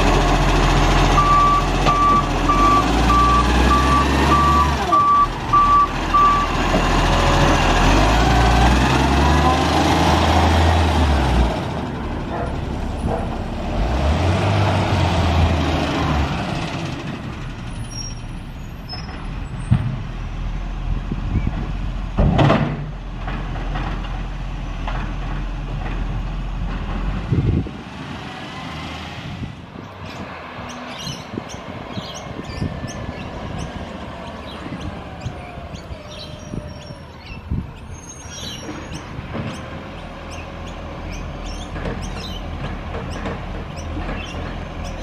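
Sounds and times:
diesel truck engine running: 0:00.0 - 0:22.2.

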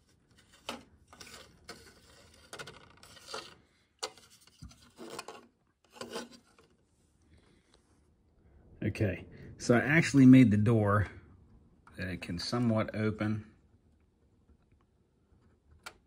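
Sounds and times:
plastic model scraping on wood: 0:00.3 - 0:06.8.

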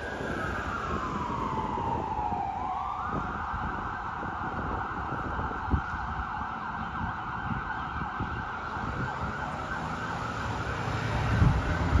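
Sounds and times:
fire engine siren wailing: 0:00.0 - 0:12.0.

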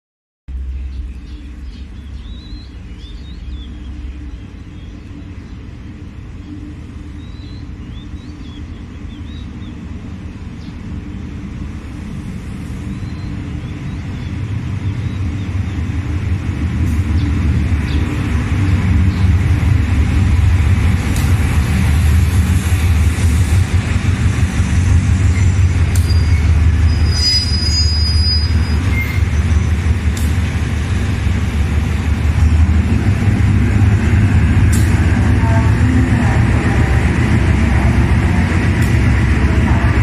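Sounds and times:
locomotive engine rumble: 0:00.5 - 0:40.0
train brakes squealing: 0:25.2 - 0:29.9.

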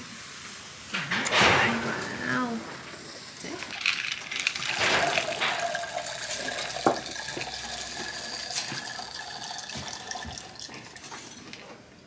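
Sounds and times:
kernels splashing into water: 0:02.9 - 0:11.7.

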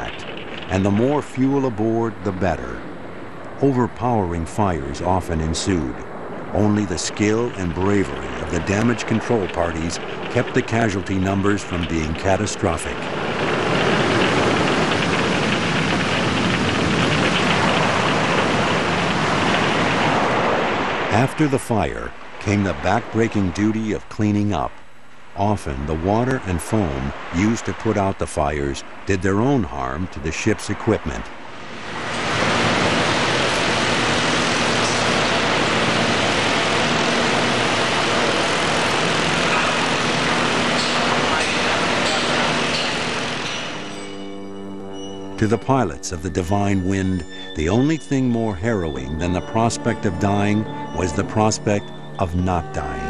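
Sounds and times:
rushing spraying water hiss: 0:06.6 - 0:23.8, 0:29.6 - 0:44.0.

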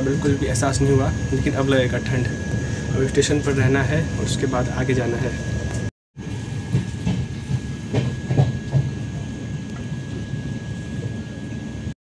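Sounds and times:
train wheels rumbling on track: 0:00.0 - 0:11.8
train knocks: 0:05.7 - 0:09.5.

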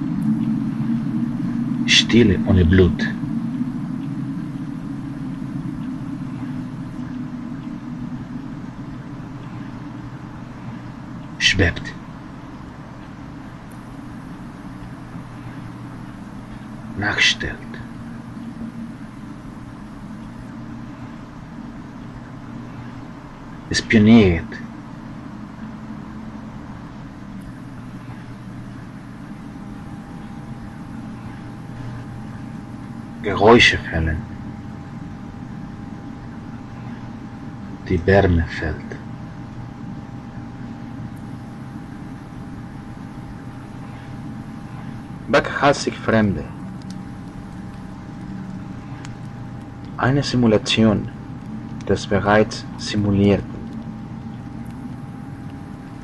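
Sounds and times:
faint high whine: 0:00.0 - 0:56.0
low rumbling drone: 0:00.0 - 0:56.0.

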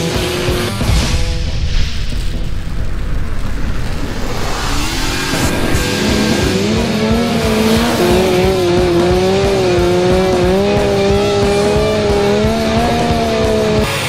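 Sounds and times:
motorcycle engine at high revs: 0:00.0 - 0:00.9, 0:03.8 - 0:14.0.

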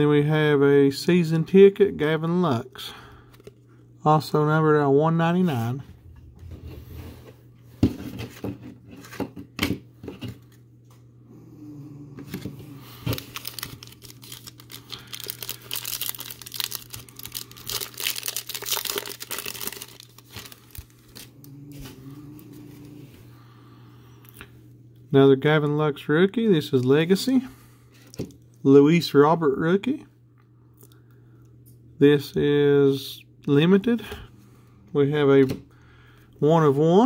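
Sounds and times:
faint low hum: 0:00.0 - 0:37.0
foil wrapper crinkling: 0:13.0 - 0:21.4.

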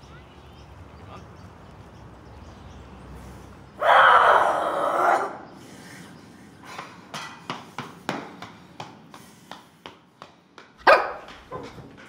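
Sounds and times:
small dog yapping: 0:03.8 - 0:05.4, 0:10.9 - 0:11.2.

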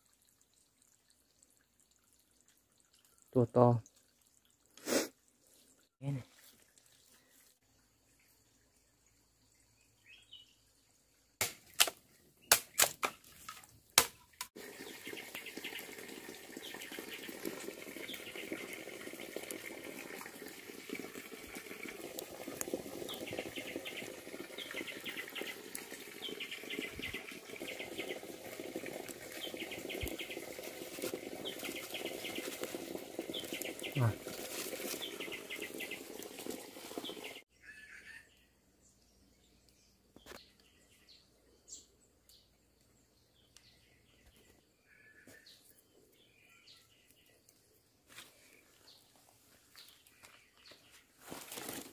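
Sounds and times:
wood fire crackling and hissing: 0:18.8 - 0:26.3, 0:27.4 - 0:37.3.

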